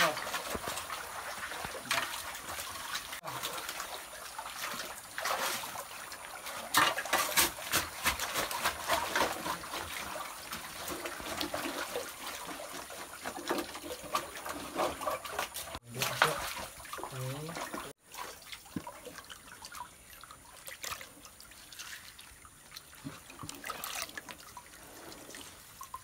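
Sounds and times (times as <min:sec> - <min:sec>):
muddy water splashing: 0:00.0 - 0:26.0
digging tool scraping stones: 0:06.7 - 0:09.8.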